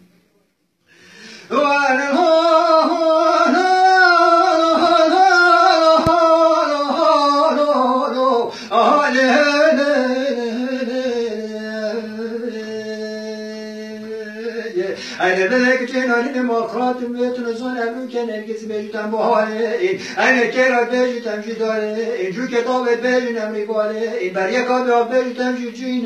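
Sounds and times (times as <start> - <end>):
breath: 0.8 - 1.5, 8.5 - 8.7, 14.9 - 15.2, 20.0 - 20.2
man singing unaccompanied: 1.4 - 26.0.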